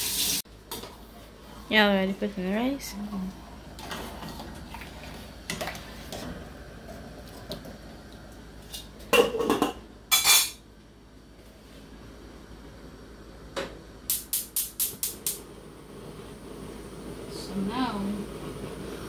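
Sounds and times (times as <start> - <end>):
pot lid clanking: 9.2 - 10.6.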